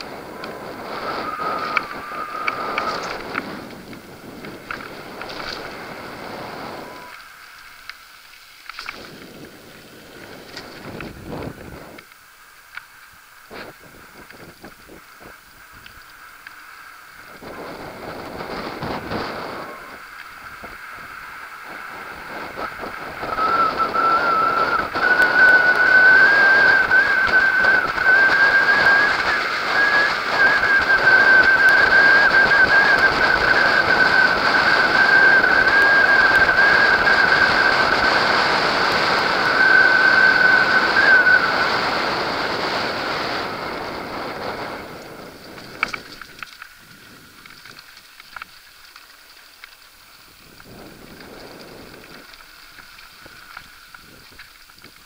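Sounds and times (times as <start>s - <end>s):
steady high whistle: 0.0s - 3.6s, 4.7s - 7.2s, 22.6s - 42.9s
wind buffeting microphone: 0.0s - 7.2s, 8.8s - 12.1s, 13.5s - 16.1s, 17.1s - 48.5s, 50.2s - 55.0s
bike clicks and rattles: 0.0s - 24.1s, 44.1s - 55.0s
tyres rolling on gravel: 0.0s - 41.4s, 42.2s - 55.0s.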